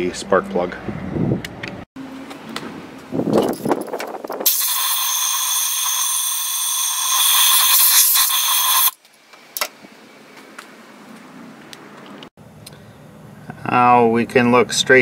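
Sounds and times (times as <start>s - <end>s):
compressed air hissing: 4.4s - 9.0s.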